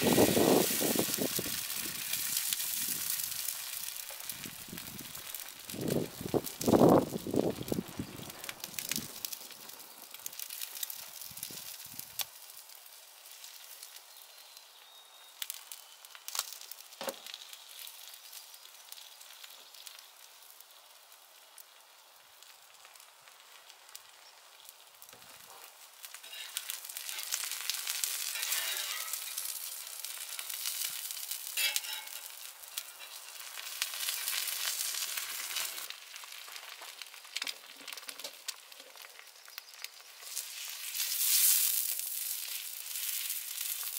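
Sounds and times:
food sizzling on griddle: 0.0 - 43.9
oil poured onto hot griddle: 25.7 - 39.1, 40.2 - 43.9.

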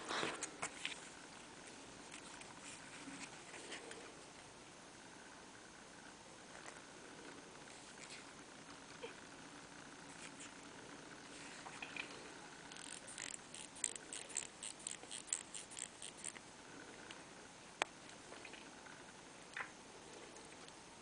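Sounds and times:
watch crown ratchet clicking: 12.7 - 16.4.

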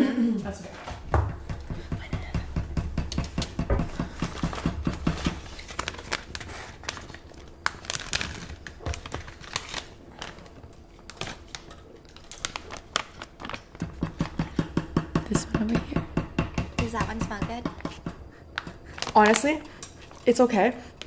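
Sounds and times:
plastic pouch crinkling and tearing: 5.4 - 13.8.

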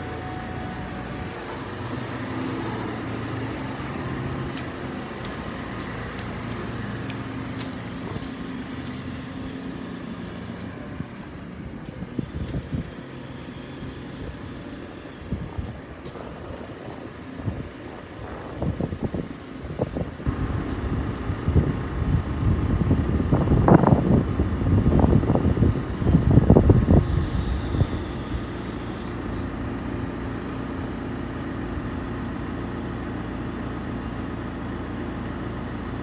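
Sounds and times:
diesel engine running: 0.0 - 36.0
low rumbles: 16.2 - 30.3.

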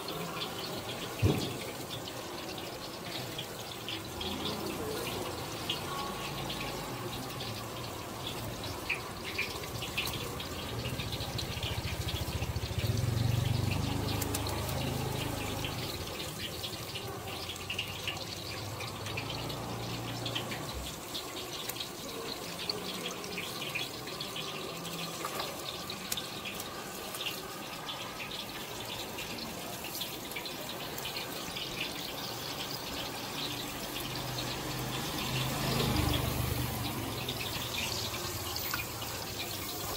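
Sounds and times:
chicken sizzling on a grill: 0.0 - 39.9.

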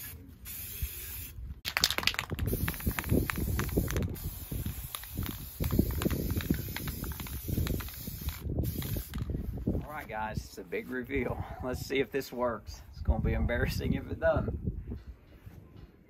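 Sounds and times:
spray paint can hissing: 0.0 - 9.4.

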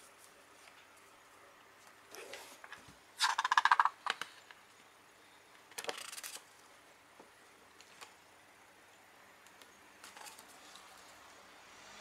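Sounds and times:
book pages turning and flicking: 5.8 - 6.4, 10.0 - 11.2.

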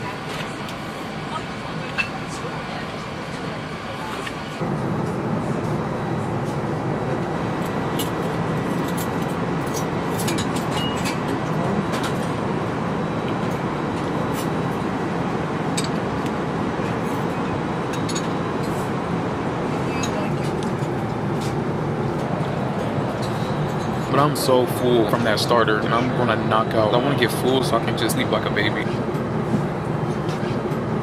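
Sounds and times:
airplane cabin rushing noise: 0.0 - 31.0
faint steady whine: 0.0 - 31.0.

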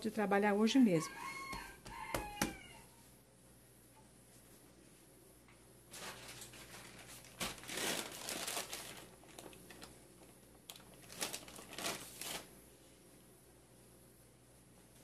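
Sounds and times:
plastic bag crinkling: 5.9 - 12.5.

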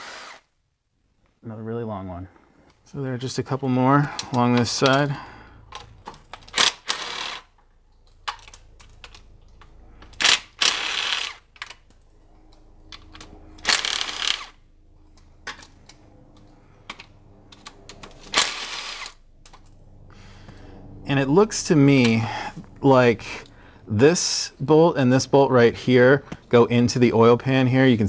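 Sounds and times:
ratchet clicking: 6.3 - 7.5, 10.1 - 11.8, 13.6 - 14.6, 17.6 - 19.2.

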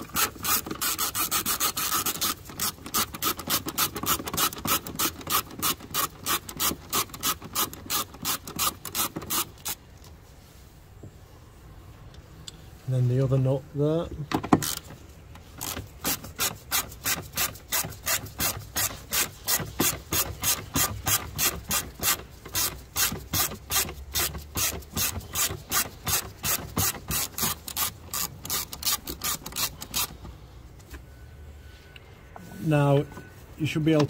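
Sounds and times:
socket ratchet clicking: 15.6 - 30.2.

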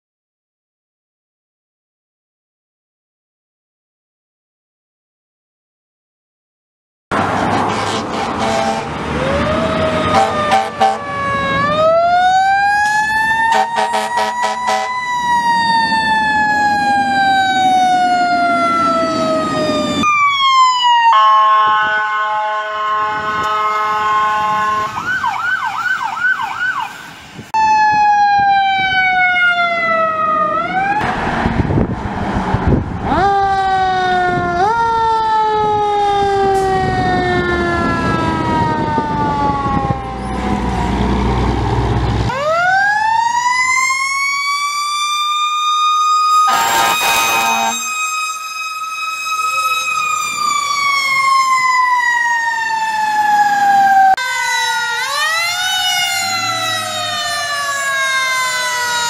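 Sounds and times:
truck engine rumbling: 7.1 - 14.6, 29.8 - 33.5, 36.5 - 42.6, 46.4 - 48.4
air horn blasts: 7.5 - 9.0, 10.1 - 11.1, 13.5 - 15.0, 21.2 - 25.0, 46.5 - 48.1
mechanical siren wailing: 8.4 - 27.0, 27.6 - 31.0, 33.1 - 41.6, 42.3 - 59.0
electronic siren yelp: 8.4 - 31.0, 42.3 - 59.0.

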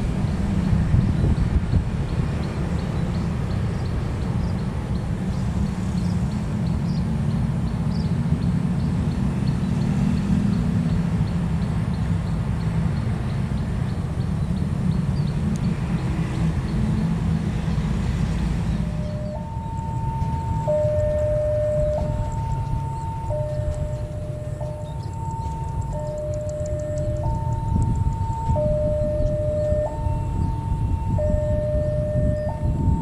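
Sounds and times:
low engine rumble: 0.0 - 33.0
faint high ticking: 18.9 - 30.1.

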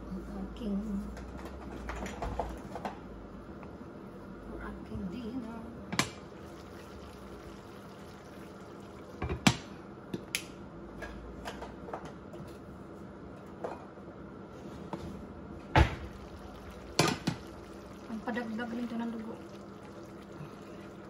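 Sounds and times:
food simmering in a pan: 6.1 - 9.7, 15.9 - 21.0.

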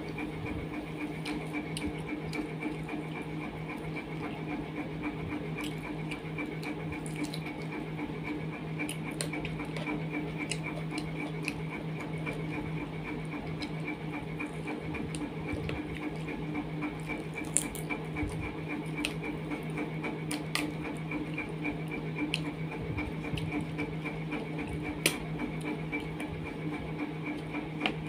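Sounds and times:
pulsing mechanical hum: 0.0 - 28.0
chewing clicks: 1.2 - 2.9, 5.6 - 7.8, 8.8 - 11.7, 16.9 - 21.5, 22.2 - 22.5.

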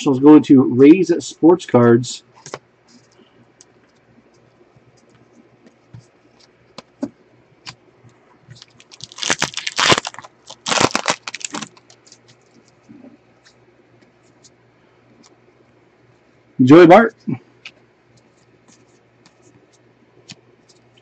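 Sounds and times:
foil wrapper ripping: 8.5 - 12.4
cards and wrapper ticking: 8.5 - 12.8.

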